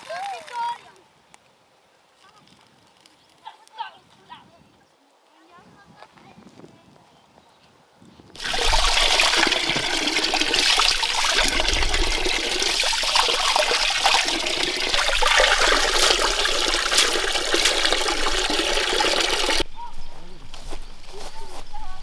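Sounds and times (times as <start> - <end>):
running water rushing: 8.4 - 19.6.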